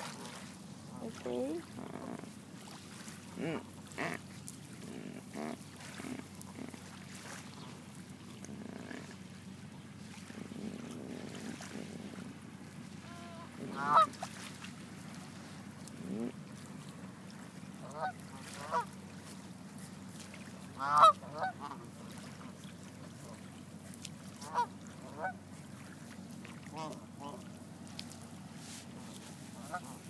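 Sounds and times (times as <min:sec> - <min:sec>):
geese honking: 0:13.0 - 0:14.2, 0:17.8 - 0:18.9, 0:20.7 - 0:22.0, 0:24.4 - 0:25.4, 0:29.5 - 0:30.0.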